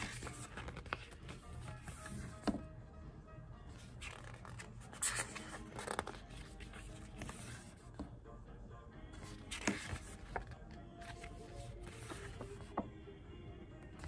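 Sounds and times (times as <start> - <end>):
paper pages rustling: 0.0 - 2.6, 3.8 - 7.8, 9.2 - 12.8.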